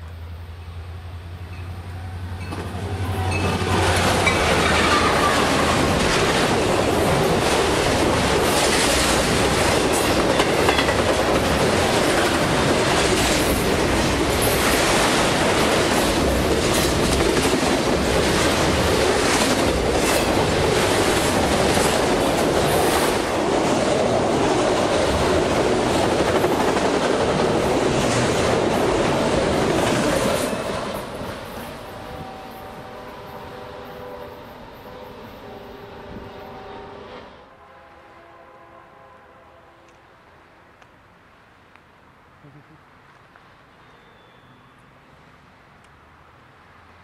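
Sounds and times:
train wheels rumbling on rail: 0:00.0 - 0:37.3
wheels clacking over rail joints: 0:02.4 - 0:32.3.

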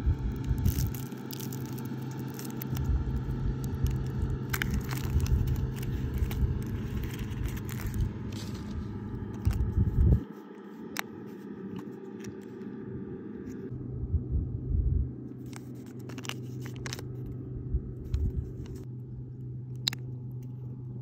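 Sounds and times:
low rumble: 0:00.0 - 0:21.0
chocolate shell cracking: 0:00.2 - 0:08.4
foil wrapper crinkling: 0:00.3 - 0:09.8
plastic capsule snapping open: 0:15.5 - 0:17.1.

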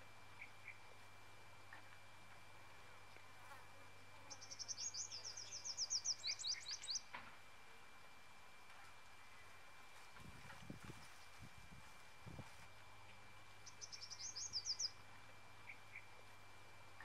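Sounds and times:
faint high outdoor tone: 0:00.0 - 0:10.0, 0:11.0 - 0:17.0
bird trilling: 0:13.8 - 0:15.0.

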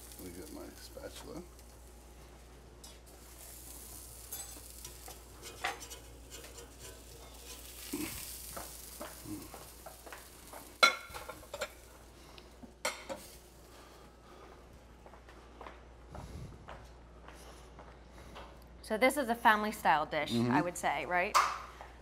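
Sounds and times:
faint sizzle: 0:00.0 - 0:14.8
metal spatula scraping stovetop: 0:03.9 - 0:08.5.

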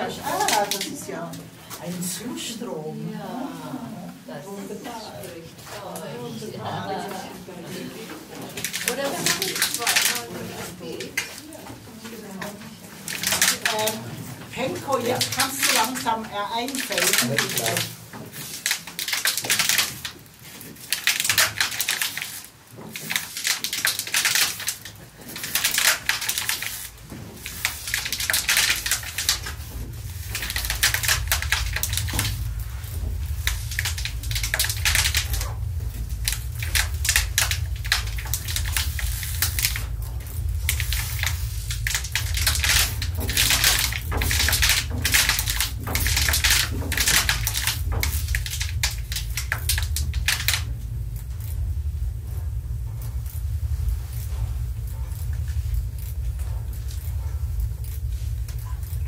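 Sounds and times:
plastic bottles crunching: 0:08.4 - 0:11.7, 0:12.4 - 0:51.6
low hum: 0:24.4 - 0:59.0.

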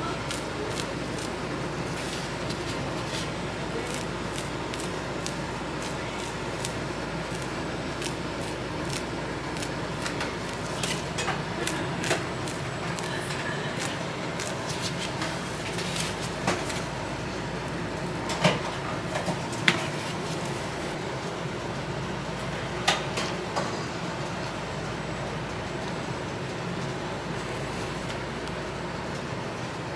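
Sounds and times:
kitchen background noise: 0:00.0 - 0:29.9.

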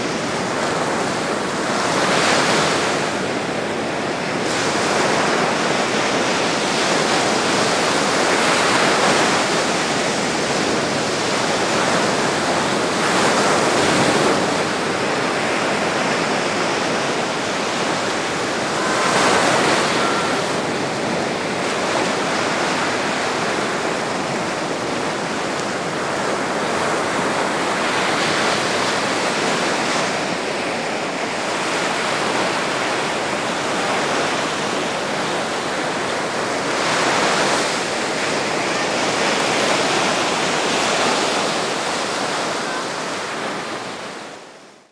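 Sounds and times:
sea waves breaking on rocks: 0:04.4 - 0:44.0.

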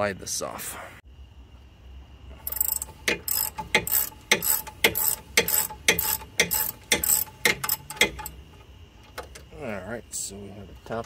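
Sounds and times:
ratchet wrench clicking: 0:02.4 - 0:08.4.

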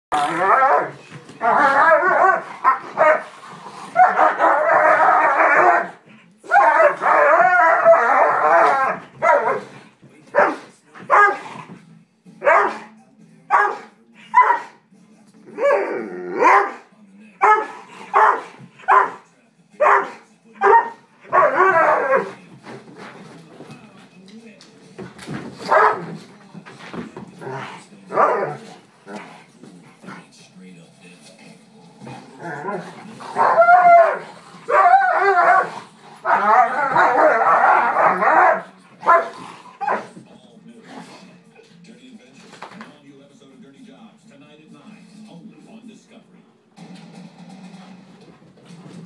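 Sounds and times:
dogs snarling growls: 0:00.1 - 0:05.7, 0:15.4 - 0:16.5, 0:27.4 - 0:30.3, 0:31.8 - 0:40.0
dog barking: 0:01.7 - 0:03.3, 0:04.0 - 0:04.7, 0:08.8 - 0:09.7, 0:10.3 - 0:11.4, 0:12.4 - 0:12.9, 0:13.5 - 0:14.8, 0:15.6 - 0:16.8, 0:17.4 - 0:19.2, 0:19.8 - 0:22.3, 0:25.7 - 0:26.0, 0:33.4 - 0:40.1.

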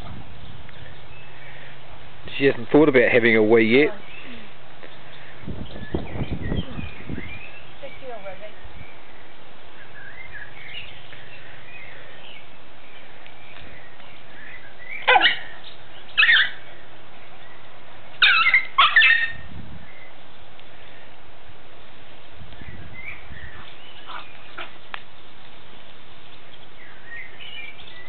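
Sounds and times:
small dog barking: 0:15.0 - 0:15.5, 0:18.2 - 0:19.4.

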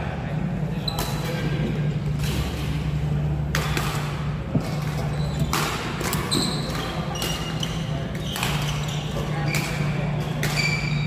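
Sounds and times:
low steady hum: 0:00.0 - 0:11.0
shoes squeaking on court: 0:00.8 - 0:02.9, 0:04.5 - 0:11.0
rackets hitting shuttlecock: 0:00.9 - 0:11.0.

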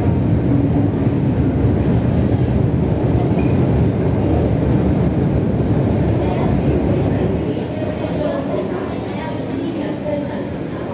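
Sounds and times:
metro train rumble: 0:00.0 - 0:10.9.

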